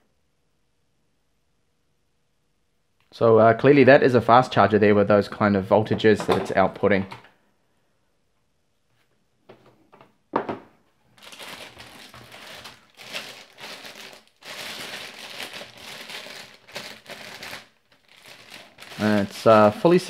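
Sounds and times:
plastic packaging crinkling: 11.1s - 20.0s.

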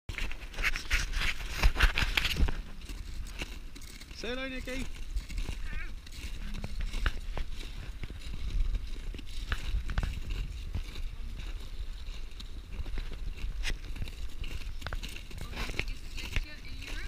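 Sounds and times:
footsteps crunching on ice: 0.1s - 17.0s
wind rumble on microphone: 4.7s - 17.0s.

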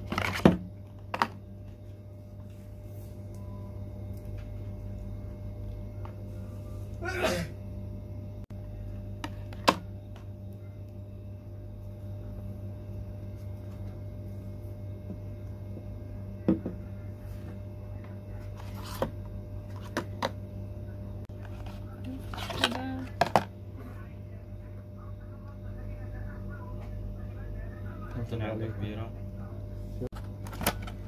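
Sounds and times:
steady low hum: 0.0s - 31.0s
plastic containers clicking and tapping: 22.3s - 23.5s.

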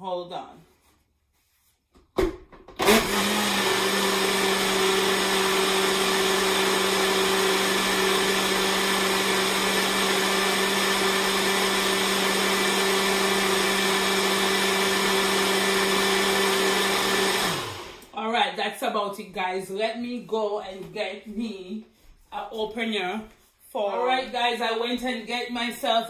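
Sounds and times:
blender motor whining: 2.8s - 18.1s.

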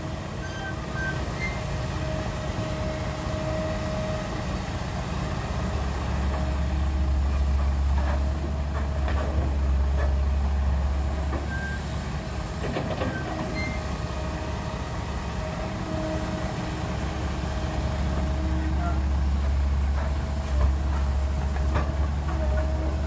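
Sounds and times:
excavator diesel engine working: 0.0s - 23.0s
clunks of earth and rock: 6.2s - 14.3s, 17.8s - 23.0s.

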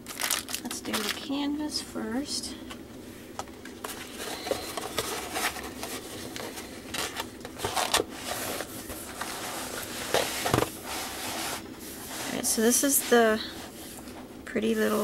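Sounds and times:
plastic bag crinkling: 0.0s - 1.4s.

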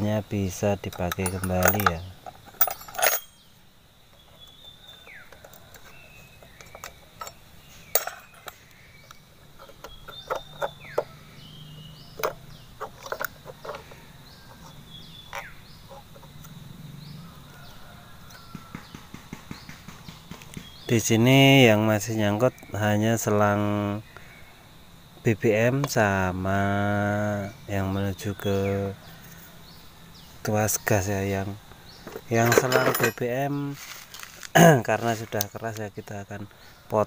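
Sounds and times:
small metal clicks and knocks: 0.8s - 3.4s, 4.1s - 11.1s, 12.2s - 16.6s, 32.0s - 33.3s.

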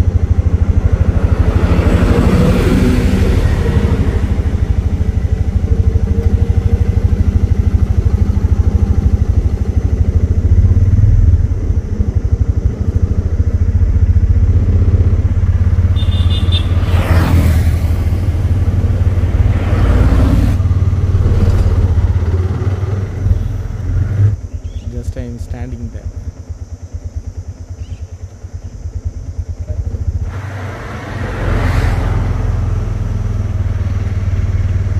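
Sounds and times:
small engine rumbling: 0.0s - 34.9s.

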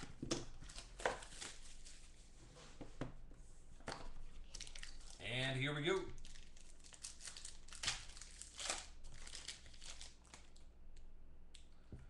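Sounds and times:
wrapper crinkling and tearing: 0.6s - 2.1s, 4.4s - 5.2s, 6.2s - 10.6s.

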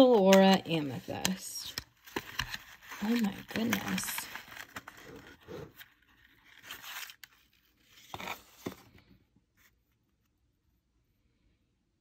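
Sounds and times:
sharp paper crackles: 2.0s - 5.4s
paper box rustling and scraping: 2.0s - 9.8s.

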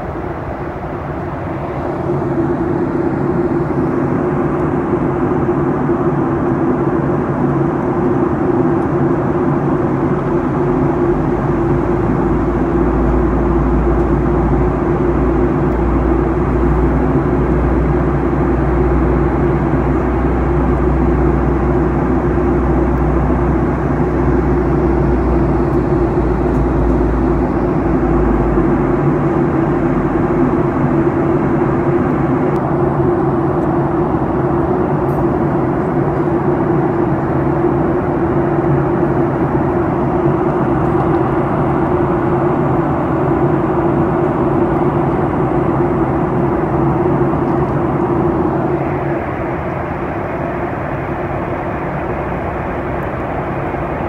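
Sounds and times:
aircraft cabin engine drone: 0.0s - 54.0s.

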